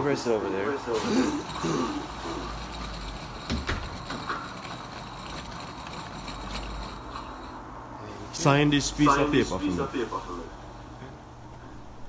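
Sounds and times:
faint scraping: 0:00.7 - 0:12.0
furniture rumbling: 0:00.9 - 0:07.7.

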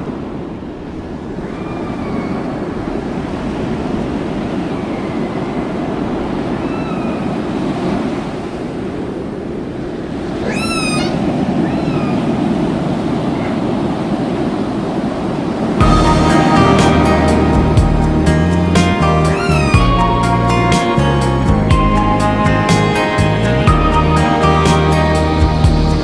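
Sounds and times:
sea water splashing along hull: 0:00.0 - 0:20.9
wind noise: 0:00.0 - 0:26.0
short high squeals: 0:10.4 - 0:12.2, 0:19.3 - 0:19.9.

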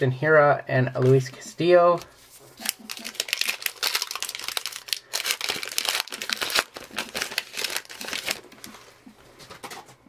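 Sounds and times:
wrapper tearing and crinkling: 0:02.6 - 0:08.9.

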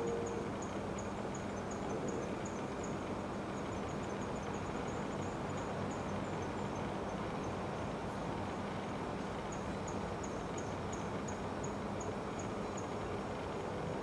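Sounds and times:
insect chirping: 0:00.0 - 0:03.0
background hiss: 0:00.0 - 0:14.0.

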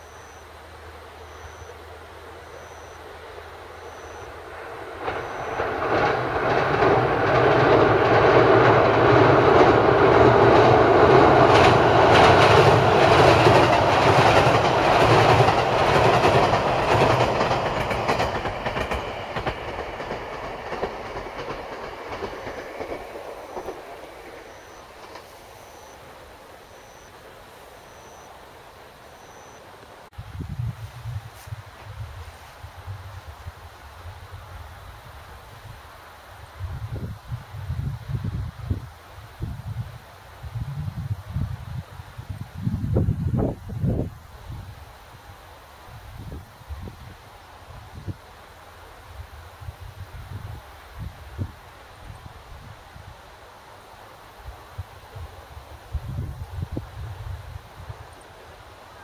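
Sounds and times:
train rumbling over bridge: 0:00.0 - 0:59.0.

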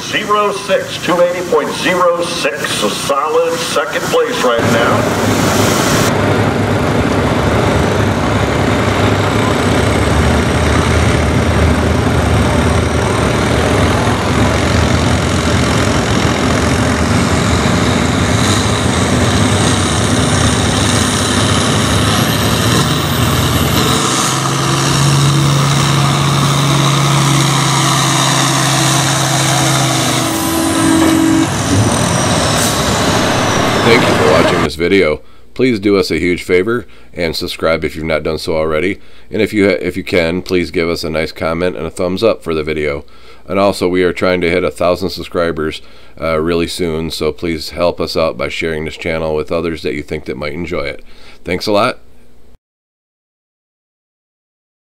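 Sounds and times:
steady pitched drone: 0:00.0 - 0:34.7
tractor engine running hard: 0:00.0 - 0:34.7.

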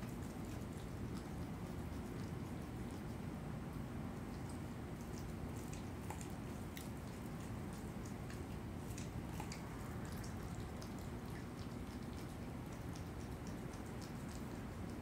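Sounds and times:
animal chewing wet smacks: 0:00.0 - 0:15.0
low background hum: 0:00.0 - 0:15.0.

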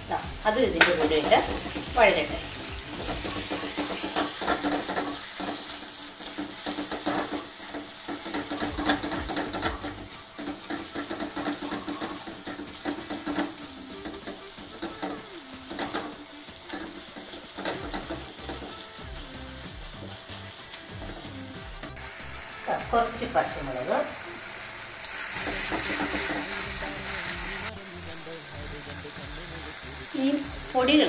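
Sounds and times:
onions sizzling in oil: 0:00.0 - 0:31.0
wooden spatula scraping a wok: 0:00.1 - 0:20.1, 0:25.3 - 0:27.7.

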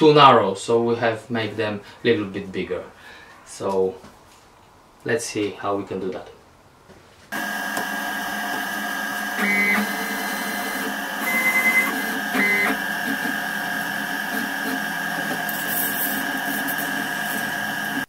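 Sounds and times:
milling spindle high-pitched whine: 0:07.4 - 0:18.0.

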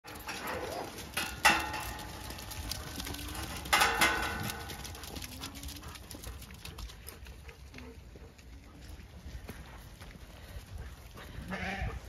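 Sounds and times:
metal gate clanking: 0:00.1 - 0:02.5.

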